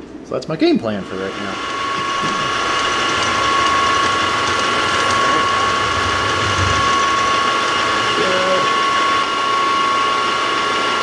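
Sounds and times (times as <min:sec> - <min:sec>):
milling spindle high whine: 0:01.0 - 0:11.0
metal cutting noise: 0:01.5 - 0:09.7.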